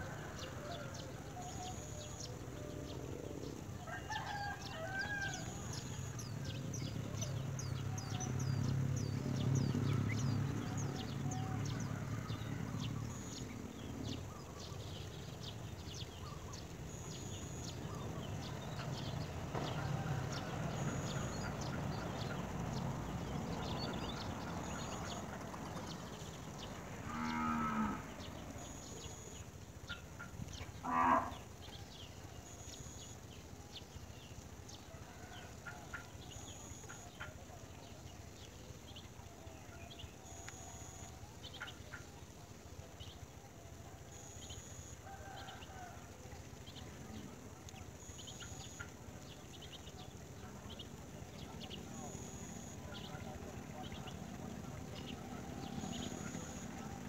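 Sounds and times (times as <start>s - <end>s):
low drawn-out animal call: 30.8s - 31.5s.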